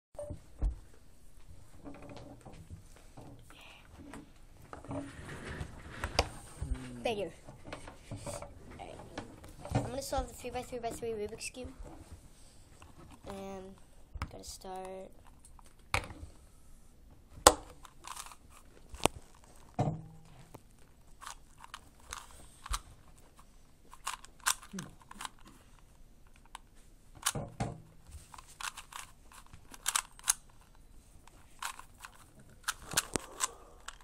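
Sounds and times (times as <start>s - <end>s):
puzzle cube plastic clicks: 17.5s - 19.7s, 21.1s - 27.4s, 28.2s - 34.0s.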